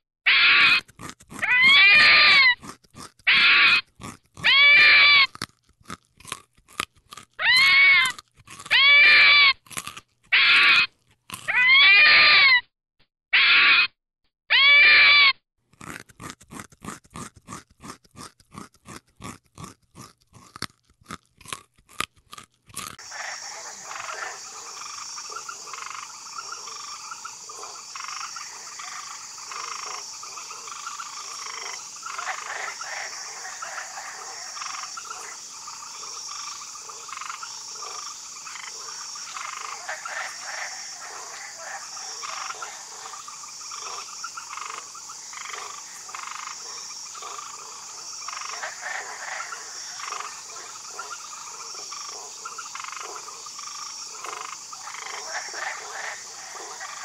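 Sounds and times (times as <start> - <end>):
frogs croaking: 23.0 - 57.0.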